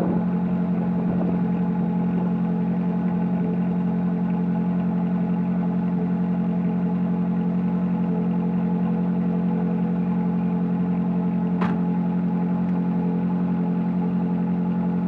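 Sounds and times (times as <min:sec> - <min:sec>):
car engine idling: 0:00.0 - 0:15.0
car door shutting: 0:11.5 - 0:12.0.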